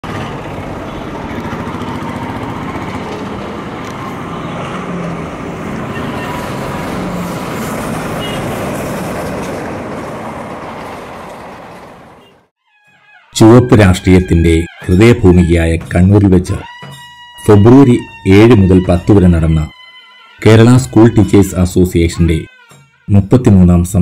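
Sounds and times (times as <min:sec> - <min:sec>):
train engine and wheels rumbling: 0:00.0 - 0:12.4.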